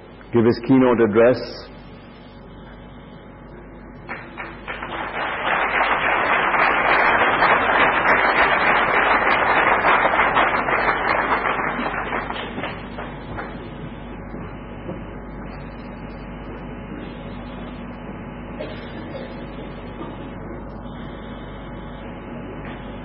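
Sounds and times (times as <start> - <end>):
audience applauding: 4.1 - 13.6.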